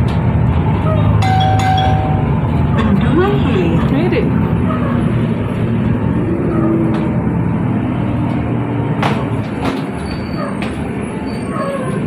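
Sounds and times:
sharp knocks and rattles: 0:00.0 - 0:03.2, 0:09.0 - 0:11.0
bus engine and road rumble: 0:00.0 - 0:12.0.

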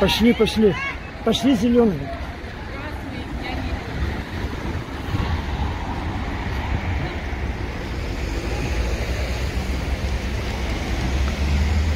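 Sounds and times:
cars driving past: 0:00.0 - 0:11.9
wind rumble on microphone: 0:03.0 - 0:11.9.

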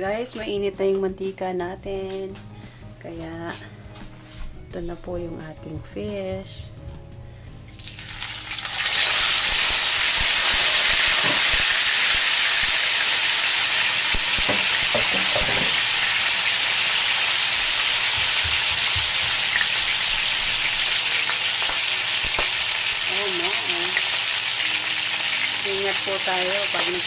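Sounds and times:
fish sizzling in oil: 0:07.7 - 0:27.0.

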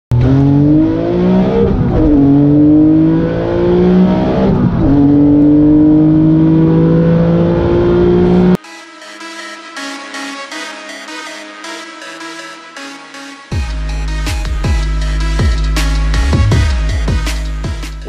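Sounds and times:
car engine accelerating: 0:00.1 - 0:08.6.

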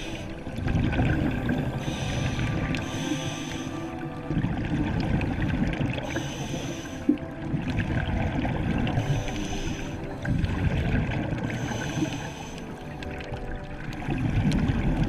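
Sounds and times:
exhaled bubbles rumbling: 0:00.0 - 0:15.0
regulator inhale hissing: 0:01.8 - 0:04.0, 0:06.0 - 0:07.2, 0:09.0 - 0:10.1, 0:11.5 - 0:12.9.

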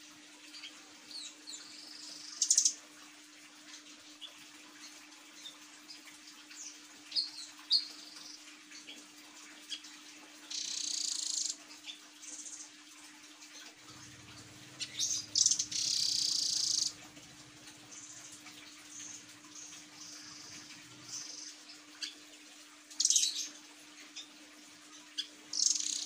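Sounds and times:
bird chirping and trilling: 0:10.5 - 0:12.6, 0:13.9 - 0:22.2, 0:23.0 - 0:23.6, 0:25.1 - 0:26.0
faint hum: 0:13.7 - 0:25.0.

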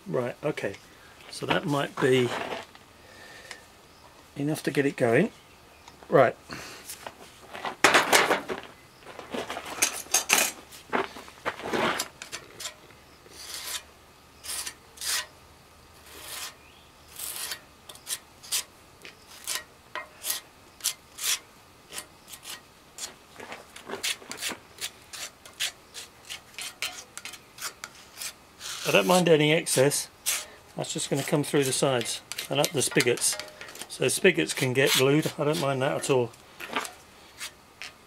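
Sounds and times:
spreader scraping adhesive on stone: 0:12.0 - 0:15.3, 0:16.0 - 0:23.2, 0:23.8 - 0:38.0.

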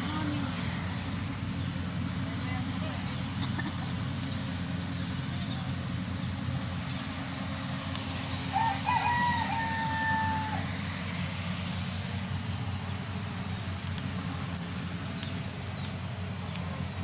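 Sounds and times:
low engine hum: 0:00.0 - 0:17.0
farm animal call: 0:05.0 - 0:05.9, 0:08.2 - 0:10.8.

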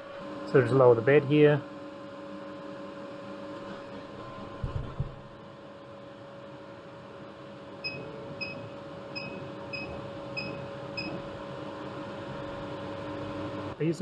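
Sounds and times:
machine hum: 0:00.0 - 0:14.0.

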